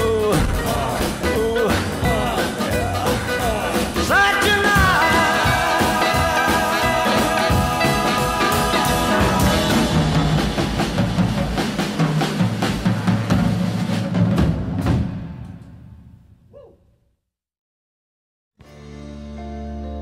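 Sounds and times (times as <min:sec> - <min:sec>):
bass playing: 0:00.0 - 0:11.4
drum kit playing: 0:00.0 - 0:16.0.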